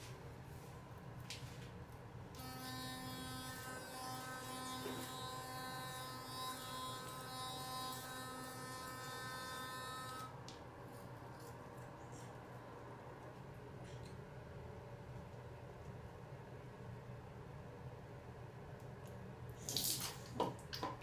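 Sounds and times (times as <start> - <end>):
electric toothbrush buzzing: 2.4 - 10.4.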